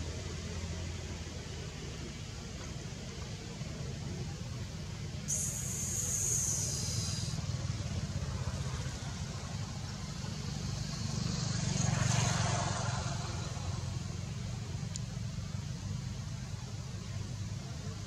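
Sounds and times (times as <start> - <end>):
traffic rumble: 0.0 - 18.0
vehicle passing: 10.6 - 14.2.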